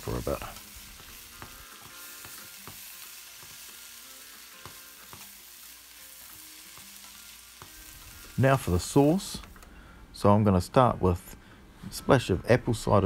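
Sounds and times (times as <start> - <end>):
vegetables sizzling in oil: 0.0 - 9.6
spatula knocking pan: 1.0 - 3.8, 4.6 - 5.3.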